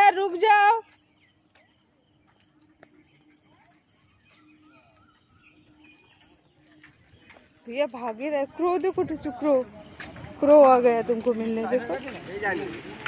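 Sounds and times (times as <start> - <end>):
bird chirps and calls: 3.5 - 7.9.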